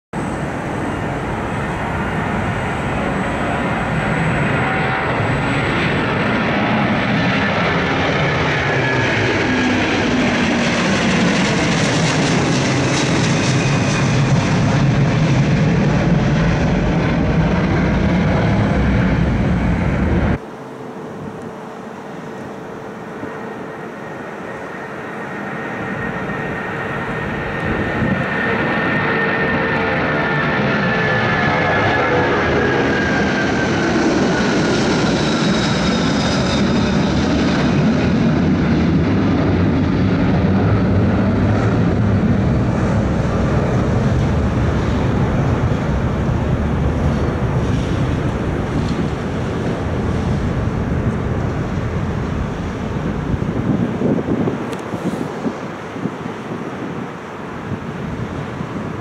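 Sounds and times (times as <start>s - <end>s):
jet engines roaring: 0.2s - 59.0s
steady hum: 18.5s - 27.4s.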